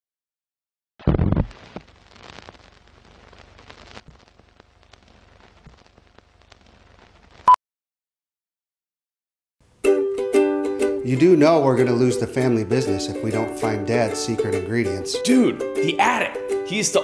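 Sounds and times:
film crackle and pops: 1.0 - 7.6.

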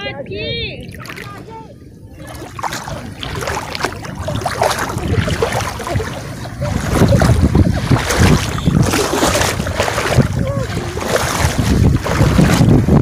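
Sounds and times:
water sloshing: 0.0 - 13.0
wind buffeting microphone: 0.0 - 13.0.

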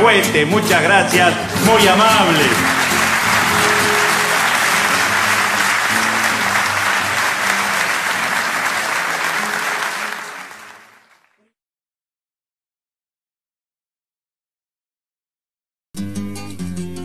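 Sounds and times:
audience applauding: 1.6 - 11.5.

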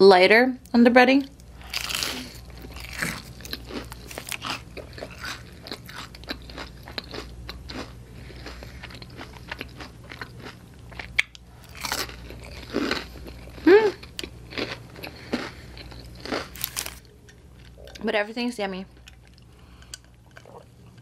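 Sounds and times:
crunchy chewing: 1.4 - 18.0.

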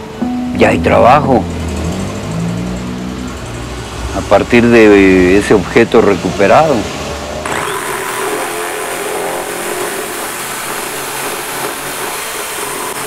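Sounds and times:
electric drill boring into plastic: 7.4 - 13.0.

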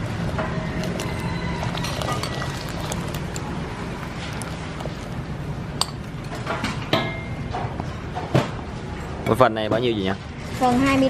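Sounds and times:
water boiling in pot: 0.0 - 6.6
metal strainer clinking on pot: 0.9 - 3.2.

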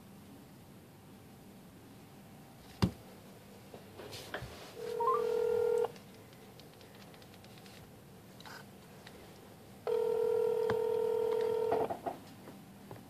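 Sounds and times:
short stepping beeps: 4.8 - 5.5
electronic phone tone: 4.8 - 5.9, 9.9 - 11.9.

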